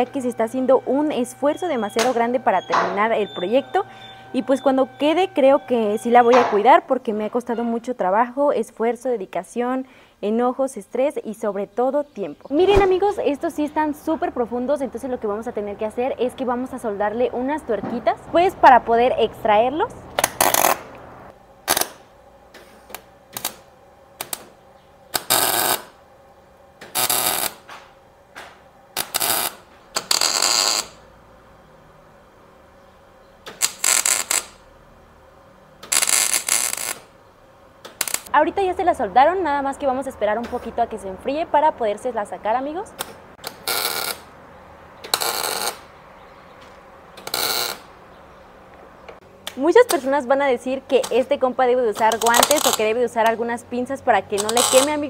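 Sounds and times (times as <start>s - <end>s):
welder crackling in bursts: 20.0s - 22.1s, 25.1s - 26.0s, 26.8s - 27.7s, 28.9s - 31.0s, 33.4s - 34.7s, 35.8s - 37.2s, 37.8s - 38.3s, 42.9s - 44.4s, 45.0s - 45.9s, 47.2s - 48.0s, 50.9s - 53.0s.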